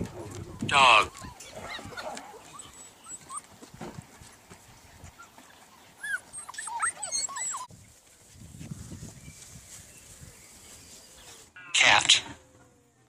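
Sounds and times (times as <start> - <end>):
puppies whimpering and yipping: 0.0 - 7.7.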